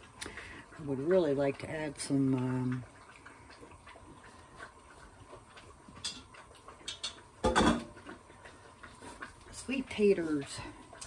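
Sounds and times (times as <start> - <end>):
kitchen clatter: 6.0 - 8.0.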